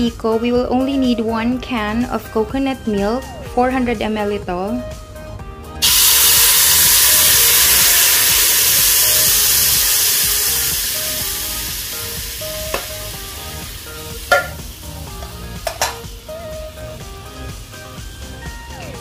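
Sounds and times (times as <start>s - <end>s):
milk sizzling in a hot pan: 5.8s - 16.2s.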